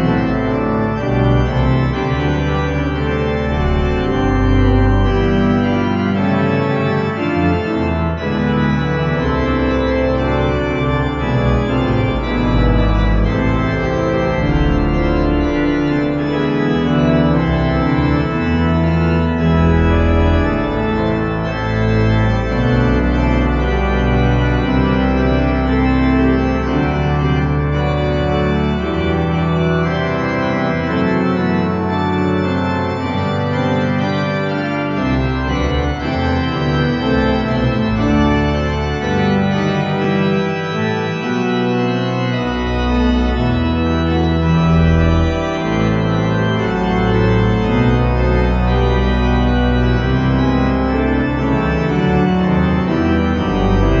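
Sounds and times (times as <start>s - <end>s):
deep organ pedal bass: 0.0s - 54.0s
pipe organ chords: 0.0s - 54.0s.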